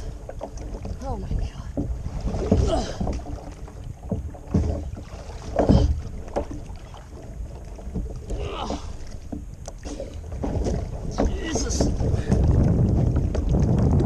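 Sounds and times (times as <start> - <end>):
water lapping around kayak: 0.0 - 14.0
swimmer splashing: 4.5 - 12.3.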